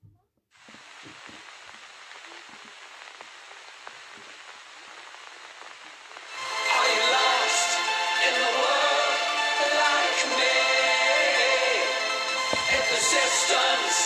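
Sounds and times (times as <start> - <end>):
old film crackle and hiss: 0.5 - 14.0
music with choral singing: 6.3 - 14.0.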